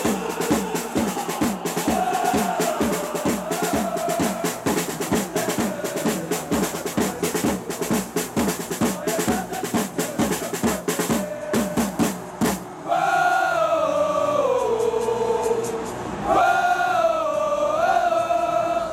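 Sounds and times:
fast marching drum beat: 0:00.0 - 0:12.7.

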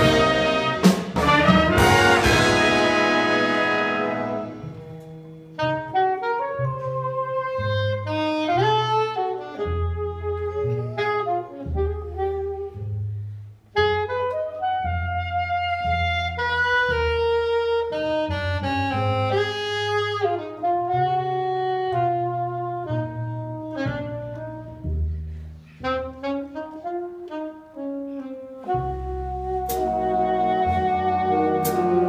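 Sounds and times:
jazz band chord: 0:00.0 - 0:12.7, 0:25.8 - 0:32.0
alto saxophone solo: 0:00.0 - 0:25.0, 0:25.8 - 0:32.0
plucked upright bass: 0:28.6 - 0:32.0.

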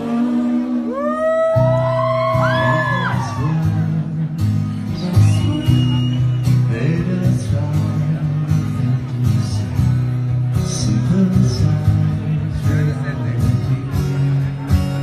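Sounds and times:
live band playing amplified music: 0:00.0 - 0:15.0.

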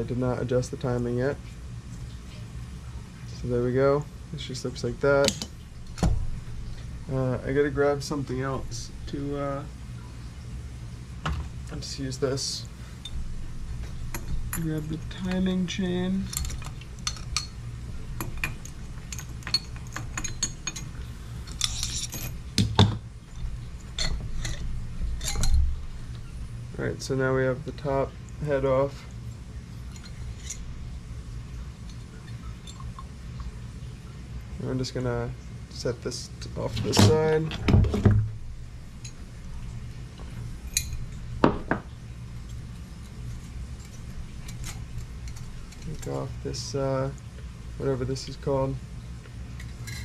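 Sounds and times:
steady low hum: 0:00.0 - 0:50.0
metal parts clinking and rattling: 0:16.2 - 0:17.6, 0:18.2 - 0:25.7, 0:49.6 - 0:50.0
metal parts clinking on workbench: 0:21.5 - 0:22.4.

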